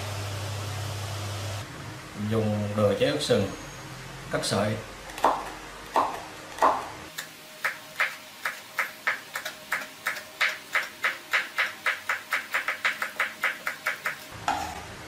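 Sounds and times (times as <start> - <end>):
cleaver chopping on cutting board: 5.2 - 6.9.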